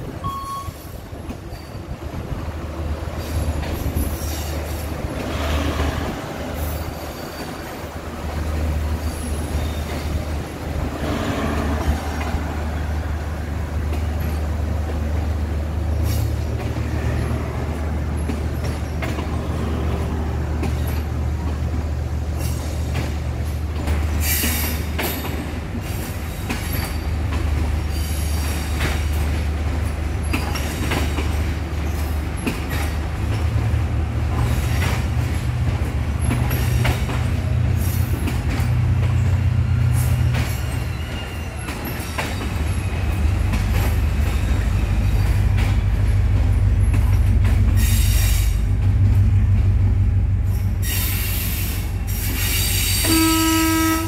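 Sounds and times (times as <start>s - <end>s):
train wheels clicking over rail joints: 0.0s - 53.3s
diesel train engine rumble: 0.0s - 54.0s
train wheels squealing: 0.2s - 2.0s, 3.2s - 5.0s, 5.7s - 8.0s, 8.9s - 10.3s, 24.2s - 29.2s, 36.2s - 46.2s, 47.8s - 48.6s, 50.5s - 53.4s.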